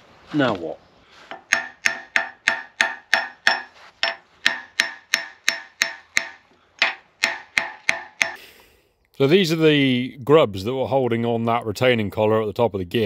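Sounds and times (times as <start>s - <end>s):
hammer tapping on metal: 1.3s - 8.4s.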